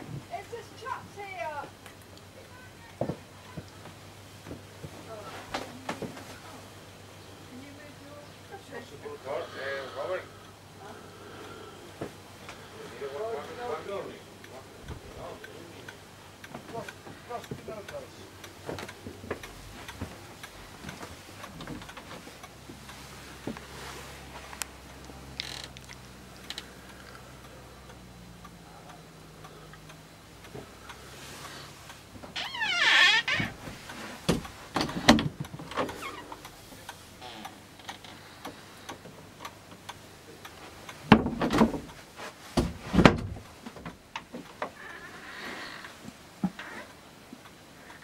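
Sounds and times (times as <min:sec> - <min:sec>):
door squeak: 0:32.4 - 0:33.6.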